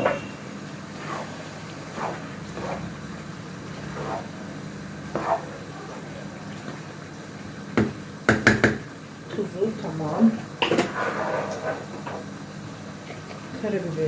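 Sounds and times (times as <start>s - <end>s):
steady low hum: 0.0s - 14.0s
wooden spoon scraping pot: 1.0s - 3.0s, 3.7s - 4.4s, 5.1s - 6.8s, 10.8s - 12.1s.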